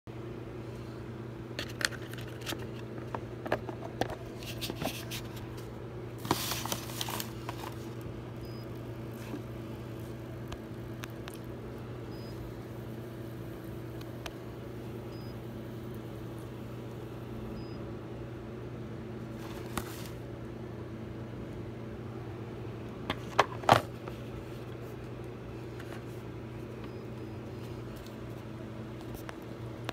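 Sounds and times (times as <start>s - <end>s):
humidifier electrical hum: 0.1s - 29.9s
rustling handling noise: 1.6s - 8.0s, 19.3s - 20.2s.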